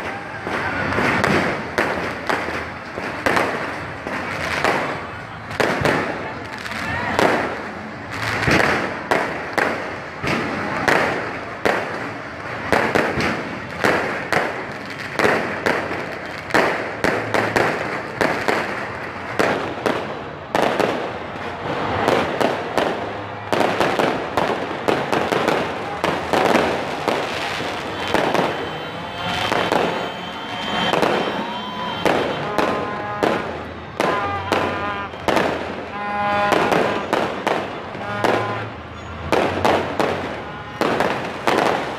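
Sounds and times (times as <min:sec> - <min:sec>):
fireworks bangs and crackles: 0:00.0 - 0:41.9.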